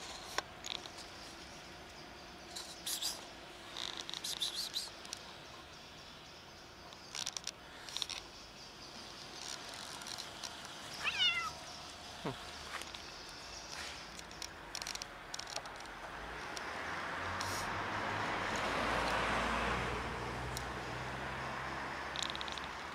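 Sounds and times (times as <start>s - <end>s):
cat meowing: 11.0s - 11.6s.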